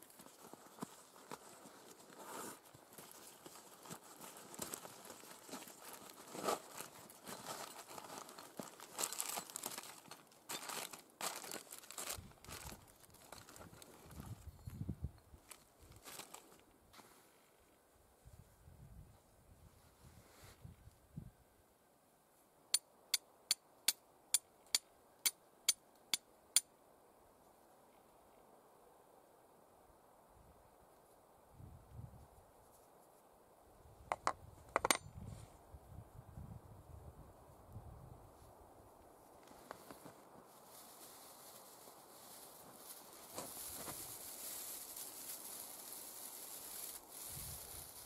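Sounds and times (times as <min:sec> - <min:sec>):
plastic bags crinkling: 0:03.8 - 0:14.0, 0:40.6 - 0:48.0
steel striking flint clicks: 0:22.7 - 0:26.7, 0:34.1 - 0:35.1.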